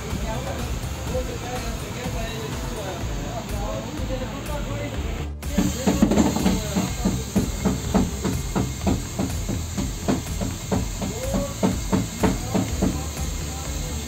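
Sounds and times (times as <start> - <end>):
sharp knocks: 5.6 - 13.1.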